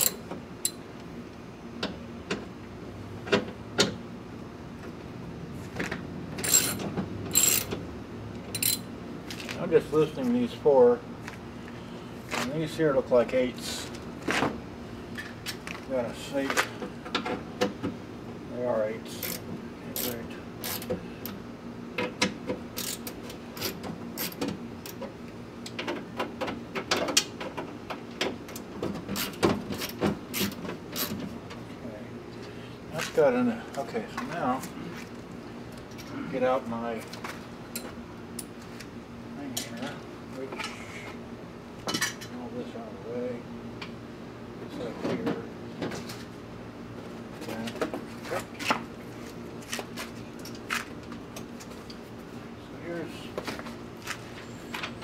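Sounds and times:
hand ratchet clicking: 0:06.4 - 0:07.7, 0:08.6 - 0:08.8.

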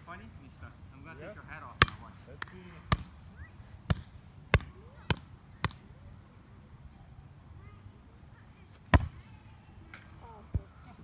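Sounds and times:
volleyball slapped by hand: 0:01.8 - 0:03.2, 0:03.9 - 0:05.8.

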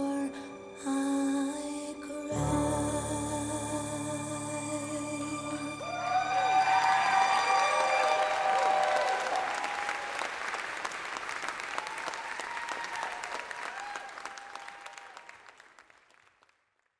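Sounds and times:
audience applauding and cheering: 0:05.8 - 0:16.6.

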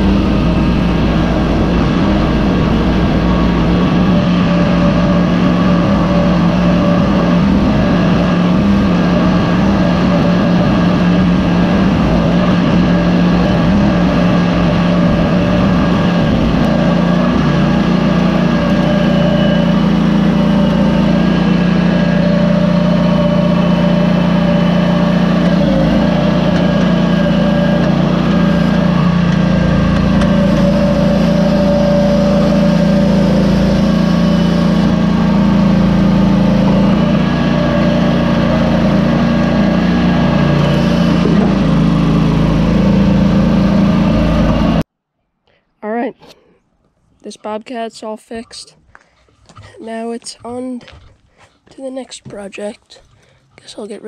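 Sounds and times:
skid steer engine running: 0:00.0 - 0:44.9, 0:48.3 - 0:54.0.

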